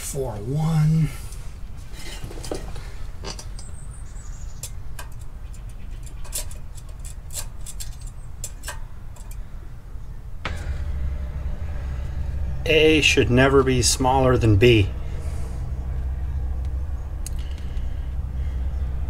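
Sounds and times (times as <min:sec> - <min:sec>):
steady low hum: 0:00.0 - 0:19.0
small tools clicking and tapping: 0:04.4 - 0:09.4.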